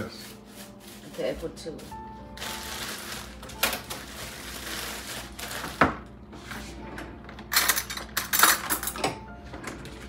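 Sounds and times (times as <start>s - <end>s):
plastic bag crinkling: 0.0s - 6.2s.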